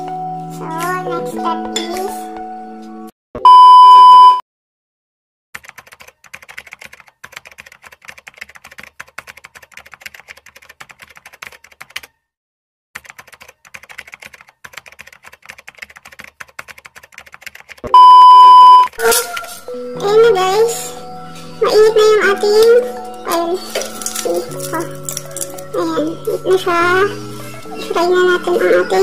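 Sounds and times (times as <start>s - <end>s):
loud electronic beep: 3.4s - 4.4s, 17.9s - 18.9s
rapid keyboard typing: 5.6s - 12.2s, 13.0s - 17.9s, 23.1s - 26.6s.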